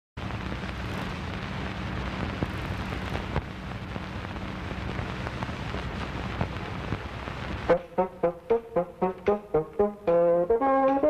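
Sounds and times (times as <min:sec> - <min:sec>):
crackle and sharp pops: 0:00.2 - 0:07.8
steady hiss: 0:00.2 - 0:11.0.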